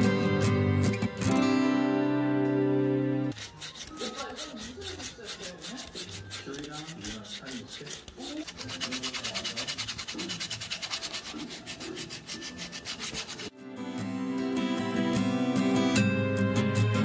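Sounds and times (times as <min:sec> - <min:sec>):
sandpaper scraping wood: 0:03.3 - 0:13.5.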